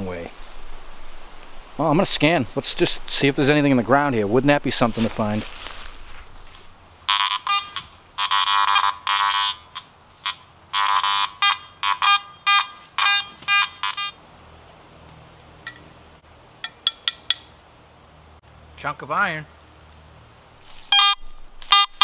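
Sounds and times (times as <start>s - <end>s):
metal detector buzzy beeps: 7.1s - 14.2s, 20.9s - 22.0s.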